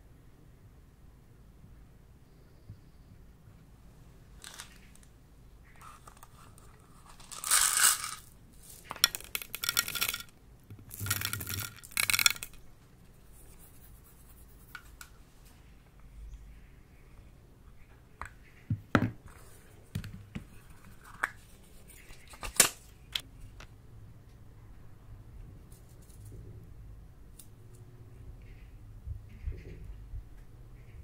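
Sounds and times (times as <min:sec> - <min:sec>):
plastic beads rattling into glass dish: 0:04.4 - 0:05.0, 0:07.0 - 0:12.6.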